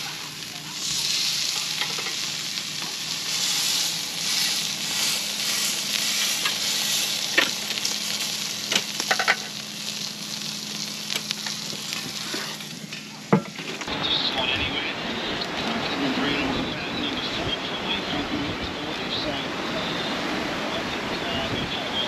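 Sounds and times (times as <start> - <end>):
meat sizzling on a grill: 0.0 - 13.9.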